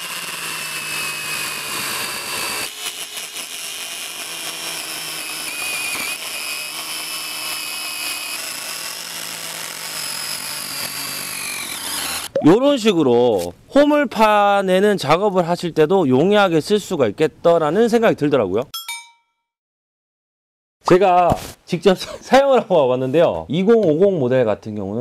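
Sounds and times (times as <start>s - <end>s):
chainsaw cutting log: 0.0s - 12.4s.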